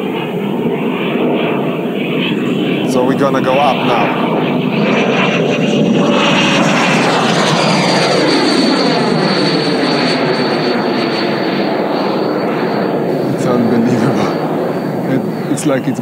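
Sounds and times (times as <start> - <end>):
electric ducted fan whine: 0.0 - 16.0
thin high fan tone: 8.1 - 16.0.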